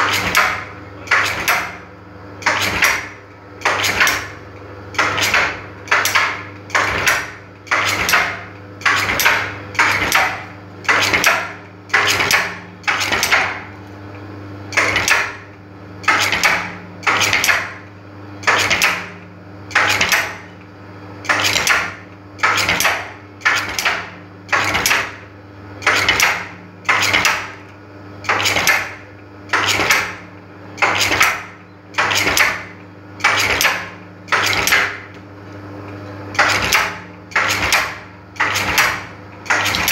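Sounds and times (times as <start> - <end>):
motor hum: 0.0 - 39.9
tufting machine metallic clack: 2.4 - 4.4, 5.0 - 13.6, 36.3 - 39.9.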